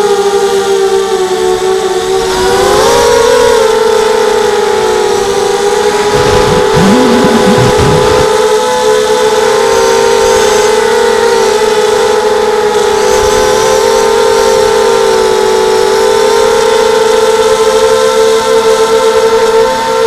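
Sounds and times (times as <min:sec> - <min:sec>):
drone motors whining: 0:03.0 - 0:08.4.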